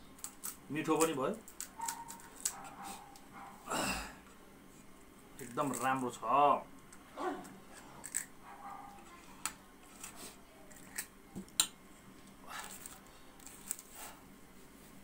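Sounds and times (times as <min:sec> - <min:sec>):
fork cracking crisp shells: 0:00.2 - 0:02.8, 0:06.8 - 0:08.4, 0:10.7 - 0:11.7.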